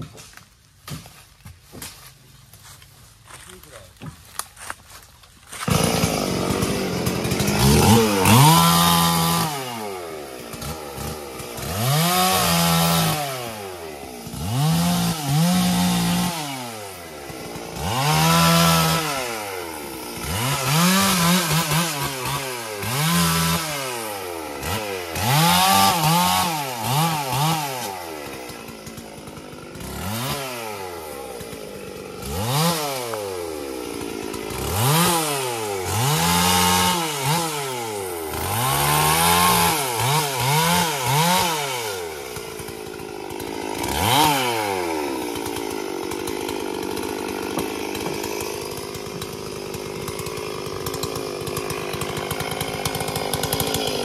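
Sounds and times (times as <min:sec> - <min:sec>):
chainsaw engine revving: 0:05.5 - 0:54.0.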